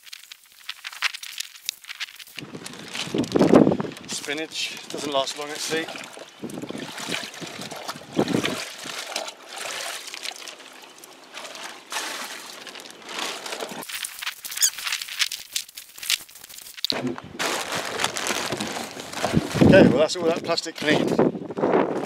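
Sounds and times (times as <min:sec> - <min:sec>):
plastic bag crinkling: 0:00.0 - 0:06.0, 0:12.6 - 0:20.0
water trickling and pouring: 0:02.5 - 0:14.3.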